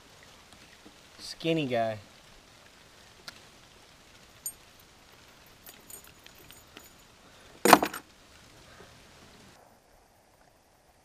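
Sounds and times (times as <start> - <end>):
metal lure jingling and clicking: 5.4 - 7.1.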